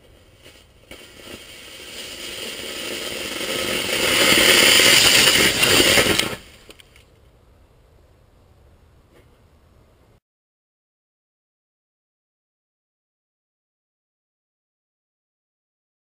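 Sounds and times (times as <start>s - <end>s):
rocket motor hissing rush: 0.0s - 6.8s.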